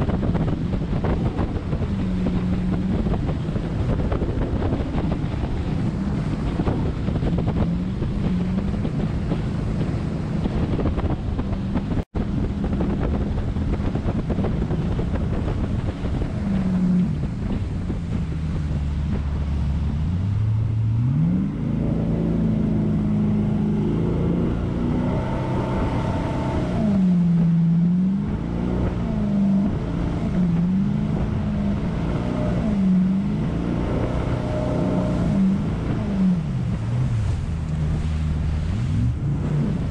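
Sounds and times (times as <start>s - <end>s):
jet boat engine running: 0.0s - 39.9s
water rushing along hull: 0.0s - 39.9s
wind buffeting microphone: 0.0s - 39.9s.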